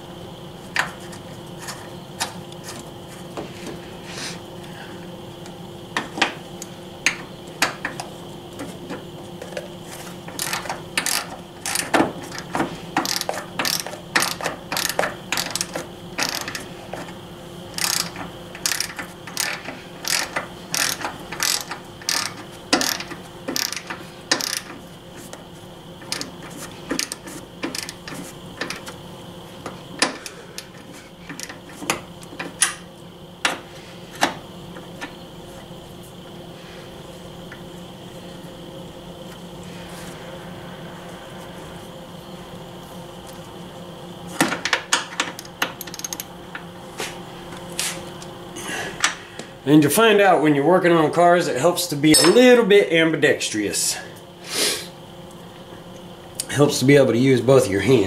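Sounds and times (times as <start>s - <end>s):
socket ratchet clicking: 10.4s - 16.6s, 17.8s - 24.7s, 27.0s - 28.8s, 45.8s - 46.3s.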